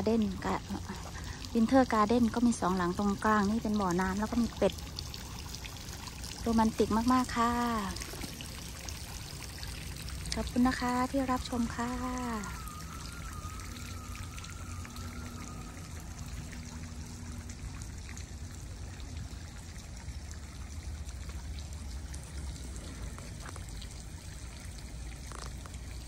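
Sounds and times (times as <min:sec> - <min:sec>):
fountains splashing and trickling: 0:00.0 - 0:26.0.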